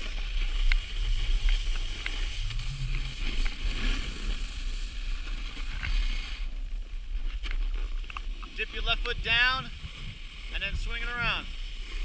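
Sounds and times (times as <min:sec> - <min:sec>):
hiss of sliding on snow: 0:00.0 - 0:06.6, 0:09.7 - 0:12.0
wind rumbling on microphone: 0:00.0 - 0:12.0.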